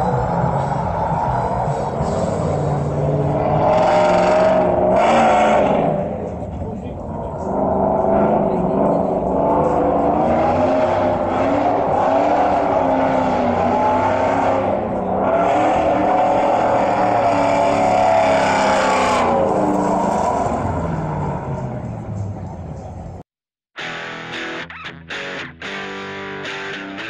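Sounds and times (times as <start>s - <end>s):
truck engine revving: 0.0s - 23.2s.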